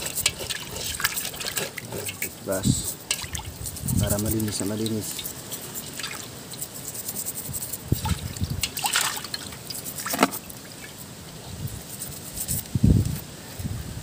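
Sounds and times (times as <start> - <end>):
toothbrush scrubbing crab shell: 0.0 - 12.8
small water splashes: 3.1 - 3.5, 5.2 - 6.3, 8.0 - 10.9.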